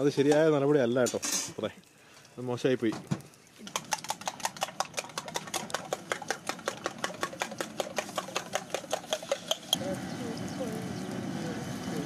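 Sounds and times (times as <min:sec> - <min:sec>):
metal spoon beating eggs in tumbler: 0:03.6 - 0:09.8.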